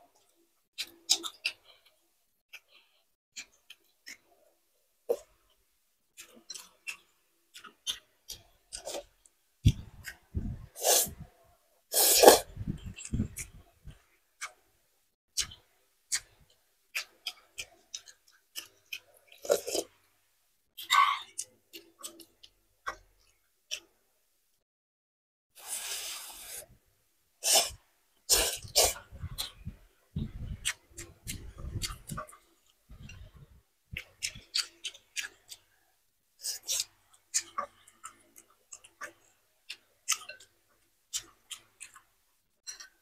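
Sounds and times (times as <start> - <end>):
chewing: 0.1 - 4.4, 6.2 - 10.4, 15.4 - 20.0, 20.8 - 23.9, 27.6 - 35.8, 36.4 - 43.0
slurping noodles: 10.6 - 11.2, 11.9 - 13.5, 19.4 - 19.9, 25.6 - 26.7, 27.4 - 29.1.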